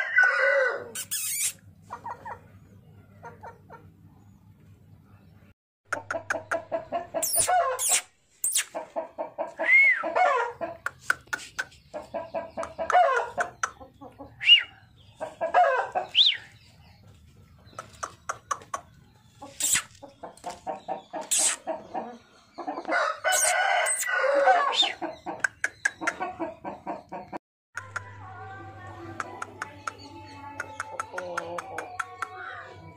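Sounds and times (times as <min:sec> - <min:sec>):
rooster crowing: 0:00.0 - 0:01.0, 0:22.9 - 0:25.0
chickens clucking: 0:00.0 - 0:32.9.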